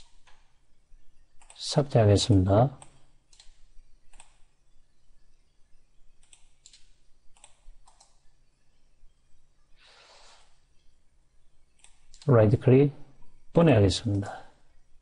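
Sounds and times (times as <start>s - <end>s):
computer mouse and keyboard clicks: 1.4s - 1.6s, 2.8s - 4.5s, 6.2s - 8.3s, 11.8s - 12.3s.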